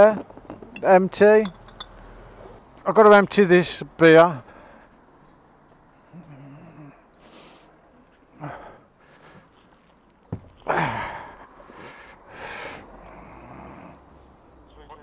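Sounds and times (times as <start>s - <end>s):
breathy huffs and sighs: 6.0s - 9.6s, 10.7s - 14.6s.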